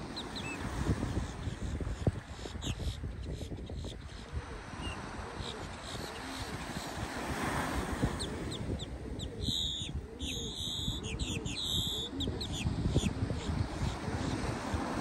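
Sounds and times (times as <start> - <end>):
birds chirping: 0.0 - 7.4, 8.0 - 14.7
harsh buzzy bird calls: 8.2 - 13.2.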